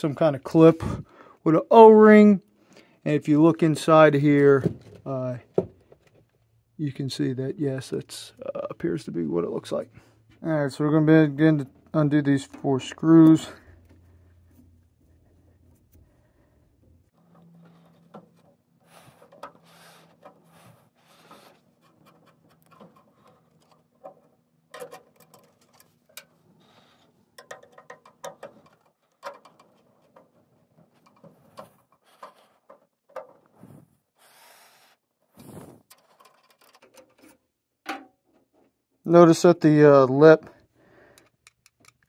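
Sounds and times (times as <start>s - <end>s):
screwdriver scraping and clicking screws: 19.1s - 26.3s, 27.0s - 30.3s, 31.0s - 33.4s, 35.8s - 37.4s.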